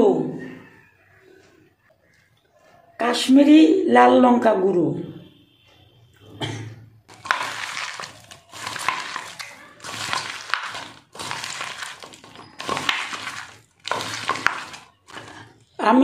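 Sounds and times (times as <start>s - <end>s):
hand mixing food in metal bowl: 7.1s - 16.0s.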